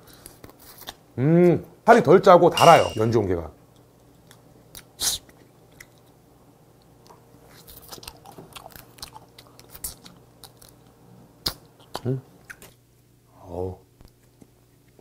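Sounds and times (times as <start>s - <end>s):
person chewing: 7.5s - 10.8s.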